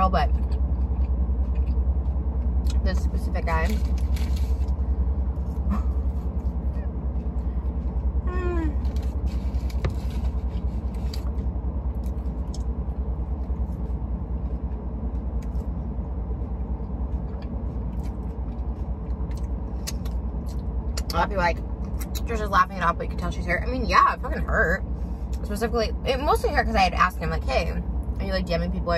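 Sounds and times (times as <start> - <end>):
low car cabin rumble: 0.0 - 28.9
mouth clicks from chewing: 19.2 - 21.1.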